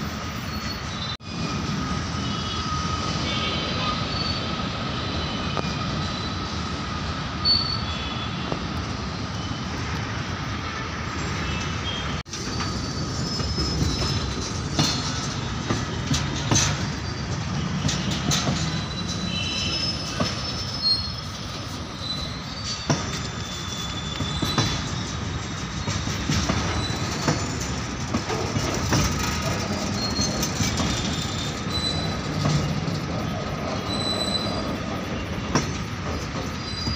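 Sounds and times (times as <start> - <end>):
high-pitched wheel squeals: 0.0 - 9.9, 11.1 - 36.9
steel wheels rumbling on rail: 0.0 - 36.9
clacks over rail joints: 11.6 - 36.9.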